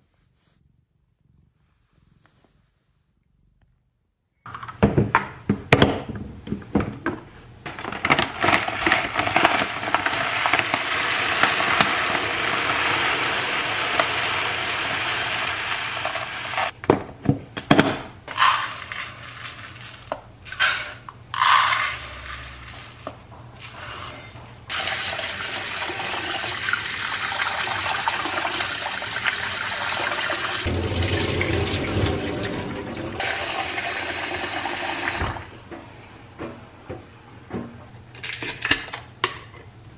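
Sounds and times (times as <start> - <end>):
rice pouring: 8.4 - 16.7, 18.3 - 35.2
tap water running into pot: 9.8 - 16.7, 24.7 - 35.4.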